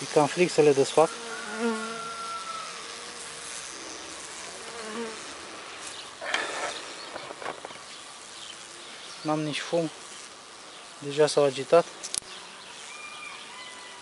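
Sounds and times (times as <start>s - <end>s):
bee flying past close: 0.0s - 9.0s
bees buzzing: 0.0s - 14.0s
rustling: 3.5s - 9.2s.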